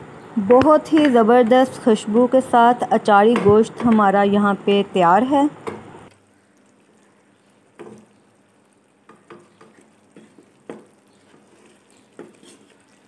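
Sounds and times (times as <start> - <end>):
faint sizzle: 0.8 - 13.0
wooden spoon scraping a wok: 9.1 - 13.0.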